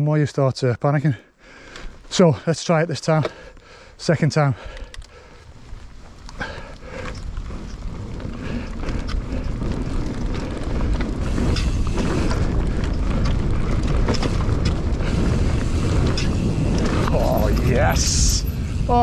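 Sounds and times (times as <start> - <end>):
bike clicks and rattles: 3.0 - 4.0, 4.6 - 19.0
tyres rolling over dirt: 5.4 - 19.0
wind on camera microphone: 6.9 - 19.0.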